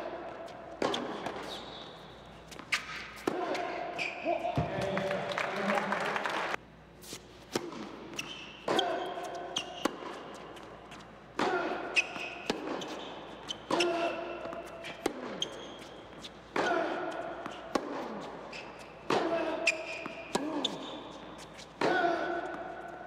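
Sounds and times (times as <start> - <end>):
tennis ball bouncing on hard court: 0.2 - 1.6, 7.5 - 10.7, 11.4 - 22.9.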